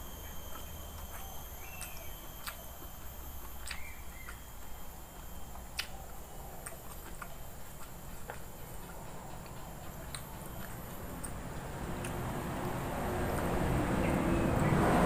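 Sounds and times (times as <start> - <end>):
person chewing food: 0.0 - 13.8
faint hum and hiss: 0.0 - 15.0
mouth clicks and smacks: 0.4 - 11.4.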